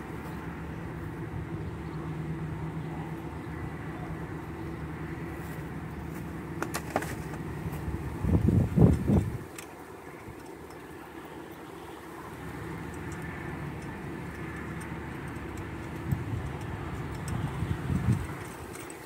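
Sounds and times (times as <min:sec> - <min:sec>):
low mechanical hum: 0:00.0 - 0:19.0
sharp clicks: 0:12.5 - 0:19.0.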